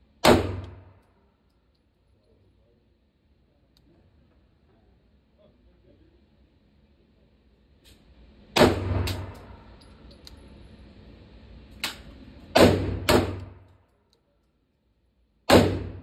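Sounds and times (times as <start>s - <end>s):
gunshots echoing indoors: 0.2s - 1.1s, 8.6s - 9.8s, 11.8s - 13.7s, 15.4s - 16.0s.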